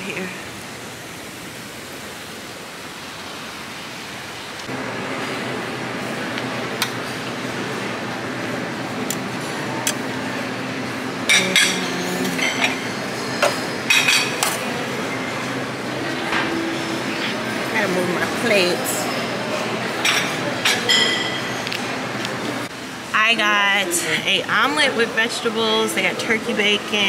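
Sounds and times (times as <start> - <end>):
steady background hum: 0.0 - 27.0
plates glasses and cutlery clinking: 11.3 - 14.7, 20.0 - 21.6.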